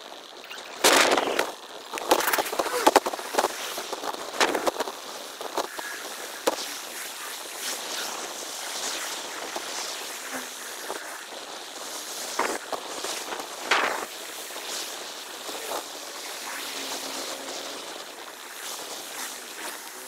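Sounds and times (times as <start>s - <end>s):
wind hiss: 0.0s - 20.0s.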